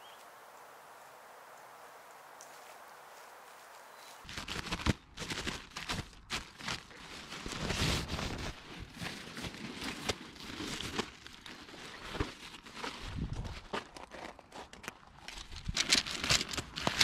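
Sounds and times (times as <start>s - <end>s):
nylon tent fabric rustling: 3.4s - 14.2s.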